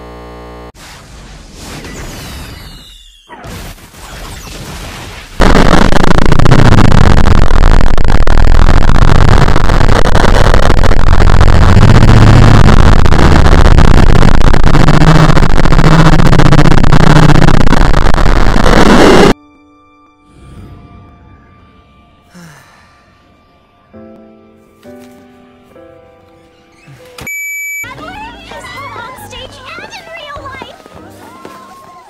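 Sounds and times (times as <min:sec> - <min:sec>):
distorted blown-out noise: 0:00.0 - 0:01.2, 0:04.2 - 0:19.4.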